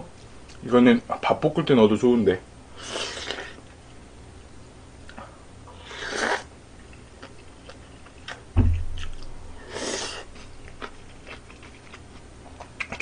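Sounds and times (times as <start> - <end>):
person slurping noodles: 2.8 - 3.6, 5.7 - 6.5, 9.6 - 10.3
low thump: 8.6 - 9.2
chewing clicks: 10.6 - 13.0.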